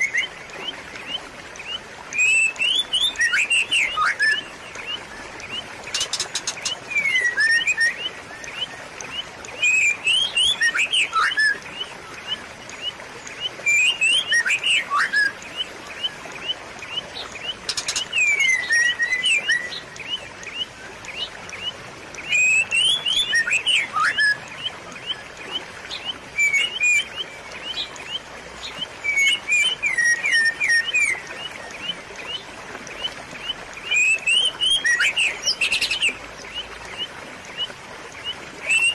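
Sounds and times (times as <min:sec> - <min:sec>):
birds chirping: 0:00.0 - 0:38.9
trickle of running water: 0:00.0 - 0:38.9
whistled bird glides: 0:05.9 - 0:08.7, 0:18.2 - 0:19.9.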